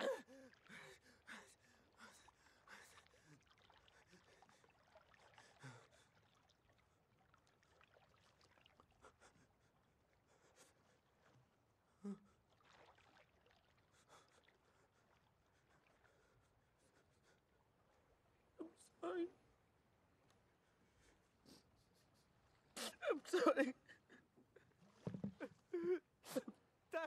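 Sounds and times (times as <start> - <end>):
man crying: 0.0 - 0.6, 22.8 - 24.3, 25.4 - 27.0.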